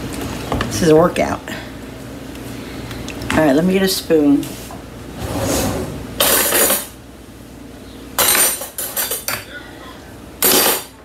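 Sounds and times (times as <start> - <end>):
cutlery and utensils clattering: 6.2 - 7.0, 8.2 - 9.5, 10.4 - 11.0.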